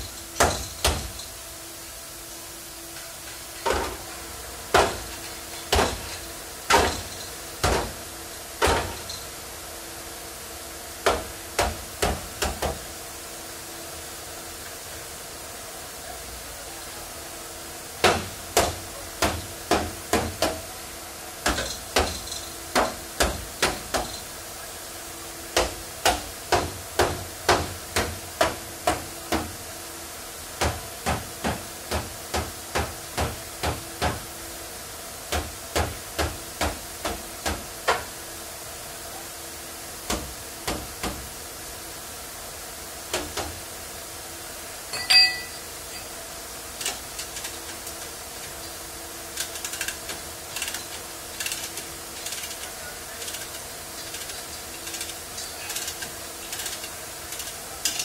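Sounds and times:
ringing metallic clank: 44.9s - 46.2s.

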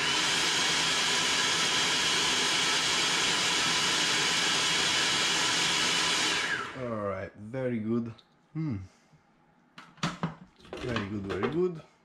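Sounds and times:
blender motor whining: 0.0s - 6.9s.

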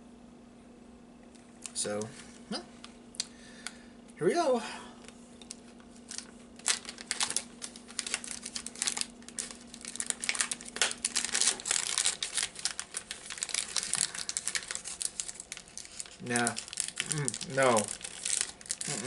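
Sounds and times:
plastic wrapper crinkling: 5.5s - 19.0s.

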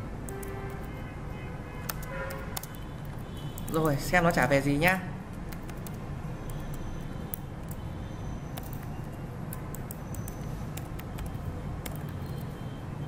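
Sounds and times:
keyboard keystrokes clicking: 0.2s - 0.9s, 1.8s - 4.0s, 4.8s - 7.8s, 8.5s - 12.6s.

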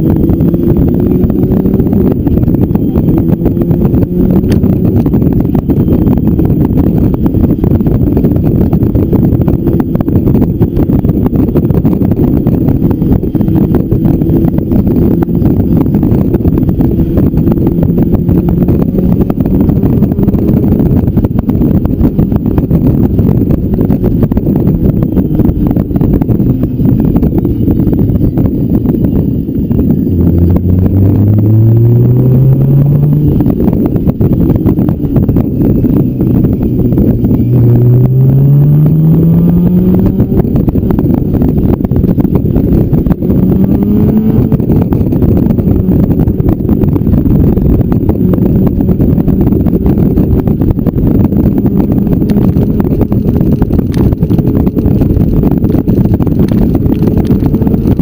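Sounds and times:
motorcycle engine cruising: 0.0s - 58.0s
wind rushing on microphone: 0.0s - 58.0s.

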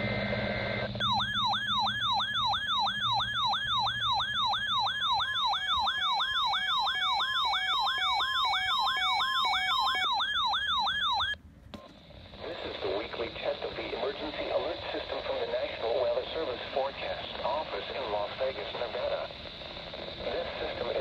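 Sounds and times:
steady beeping tone: 0.0s - 11.4s
weather radio siren alarm: 0.0s - 11.4s.

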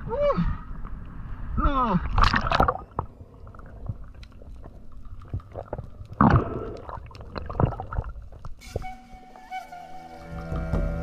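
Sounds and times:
low underwater rumble: 0.7s - 8.6s.

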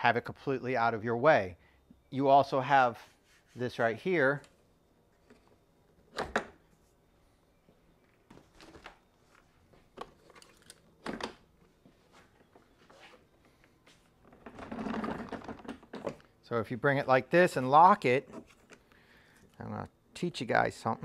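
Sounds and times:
faint handling and scraping: 2.8s - 6.0s, 11.6s - 16.3s, 17.4s - 19.6s.

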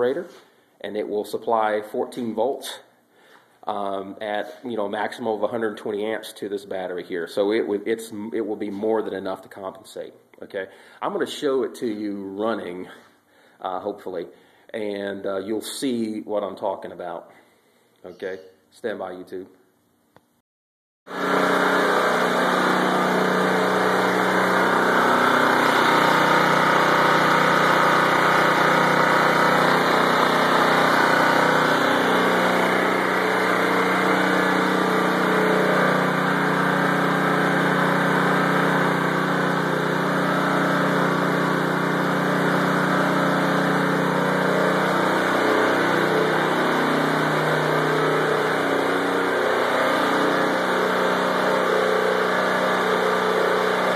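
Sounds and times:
generator engine running: 21.1s - 53.9s.

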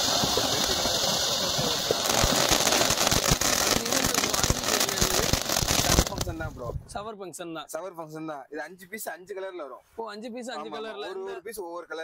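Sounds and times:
firework fountain hissing: 0.0s - 6.6s
firework crackling pops: 0.0s - 6.7s.

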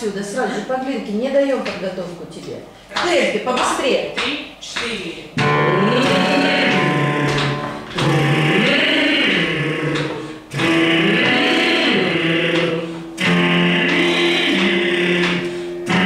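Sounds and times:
person singing vocal exercise: 4.8s - 16.0s
backing track: 5.4s - 16.0s
singer breathing: 10.1s - 10.5s, 15.4s - 15.9s.

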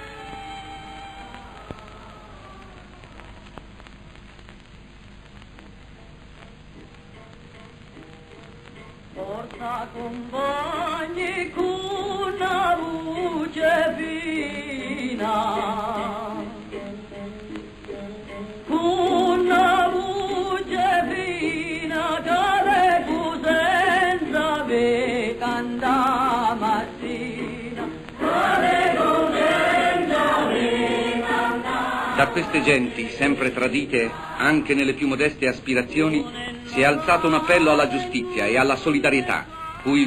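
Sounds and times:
group of people singing: 18.7s - 35.2s.

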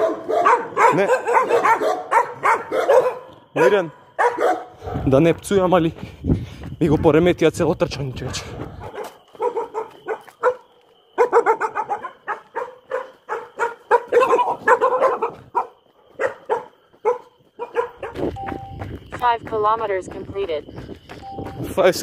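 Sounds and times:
dogs barking: 0.0s - 5.2s, 8.2s - 18.3s.

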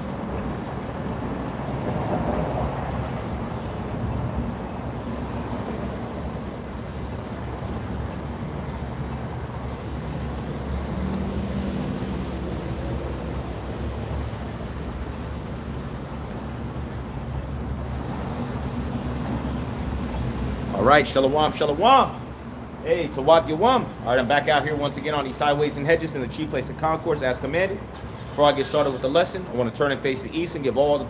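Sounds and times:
vehicle engine hum: 0.0s - 21.5s
cars passing rumble: 0.0s - 31.0s.

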